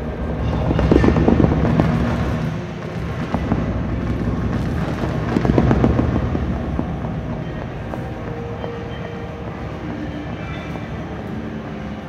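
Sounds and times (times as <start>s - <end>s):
amplified sewing machine rumble: 0.0s - 9.0s.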